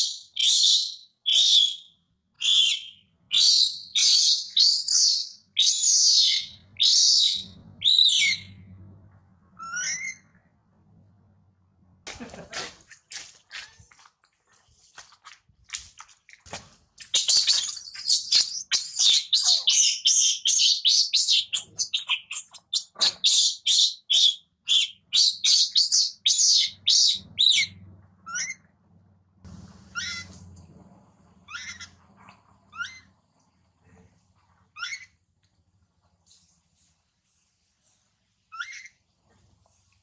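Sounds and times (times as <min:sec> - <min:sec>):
infant monkey screaming: 0:17.6 - 0:20.0, 0:30.0 - 0:30.3, 0:31.5 - 0:31.9.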